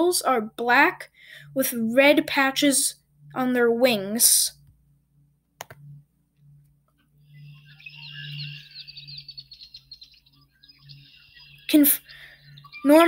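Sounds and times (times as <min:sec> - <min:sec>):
mouse click: 0:05.6 - 0:06.0
blackbird song playback: 0:05.7 - 0:13.0.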